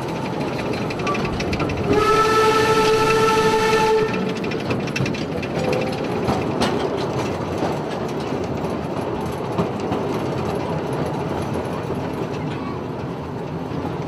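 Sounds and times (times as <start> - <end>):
track clicks and clanks: 0.0 - 14.0
train wheels rumbling on rail: 0.0 - 14.0.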